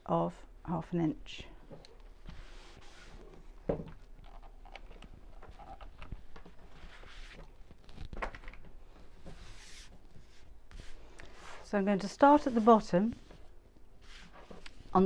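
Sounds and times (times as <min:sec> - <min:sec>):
cloth rustling and sliding: 0:02.2 - 0:03.6, 0:05.4 - 0:08.2, 0:08.8 - 0:15.0.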